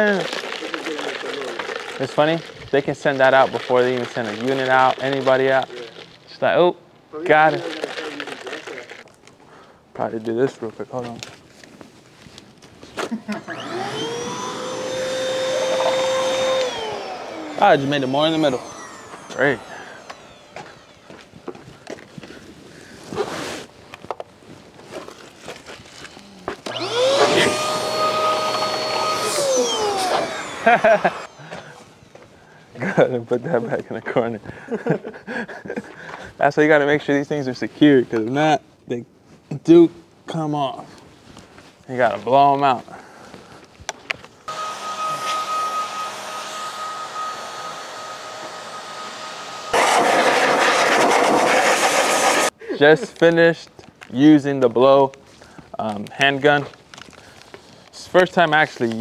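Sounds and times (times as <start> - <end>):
electric blower whining: 13.2 - 22.3, 26.5 - 32.3, 44.5 - 52.6.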